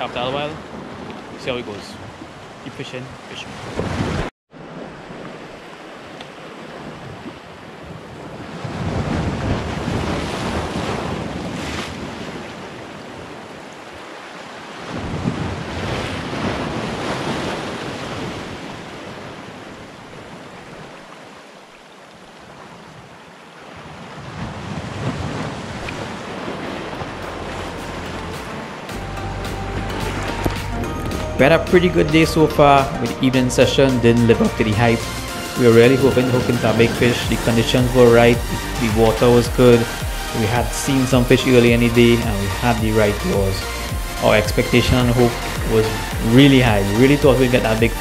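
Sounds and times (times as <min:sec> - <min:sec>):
wind buffeting microphone: 0:03.5 - 0:14.0, 0:14.8 - 0:21.0, 0:22.5 - 0:28.8, 0:36.3 - 0:42.5.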